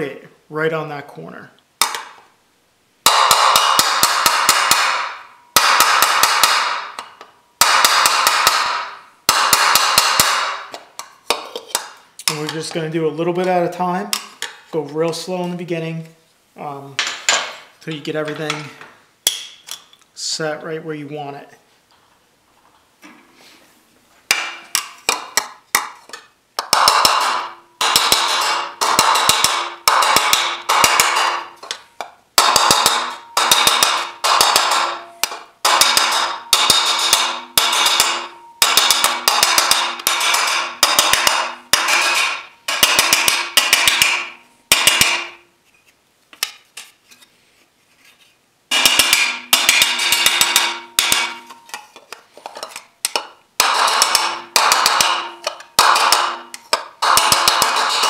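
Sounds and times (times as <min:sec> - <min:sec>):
hammer ringing on metal panel: 0:03.1 - 0:06.8, 0:26.7 - 0:31.6, 0:32.4 - 0:45.4, 0:48.7 - 0:51.8, 0:53.6 - 0:58.0.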